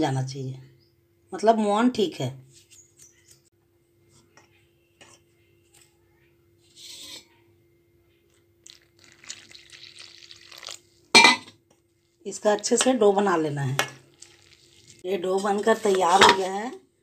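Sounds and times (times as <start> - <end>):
water pouring into flour: 8.6 - 11.1, 12.3 - 15.1
flour rustling: 12.2 - 16.3.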